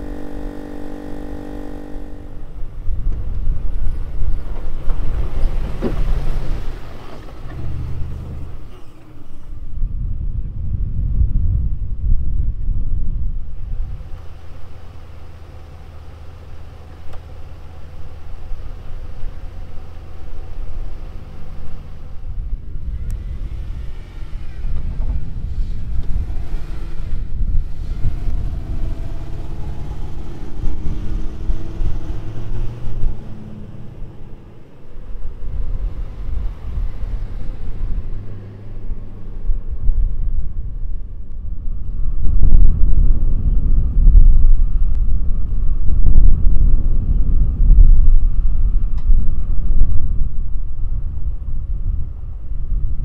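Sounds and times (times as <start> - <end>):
pickup truck engines under load: 0.0 - 10.6, 13.4 - 41.8.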